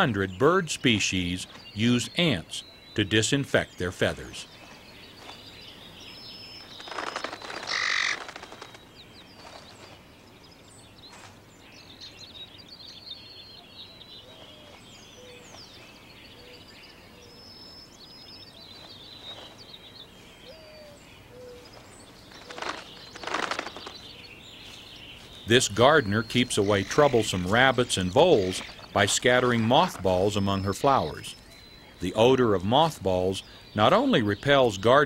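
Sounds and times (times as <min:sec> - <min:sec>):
songbirds chirping and whistling: 0:00.0 - 0:35.0
loud harsh calls: 0:06.9 - 0:08.7.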